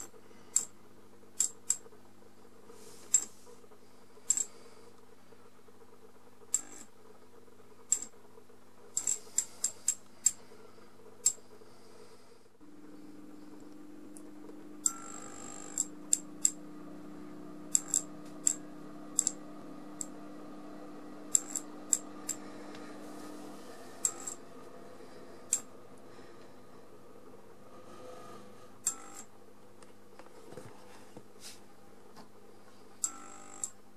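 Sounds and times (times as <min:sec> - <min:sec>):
sharp irregular clicks: 0:00.0 - 0:01.9, 0:04.2 - 0:04.6, 0:07.8 - 0:08.2, 0:08.9 - 0:10.4, 0:15.7 - 0:16.6, 0:17.7 - 0:18.6, 0:19.2 - 0:19.4, 0:21.3 - 0:22.4, 0:25.5 - 0:25.7
fluorescent ballast humming: 0:00.0 - 0:30.6, 0:31.8 - 0:33.9.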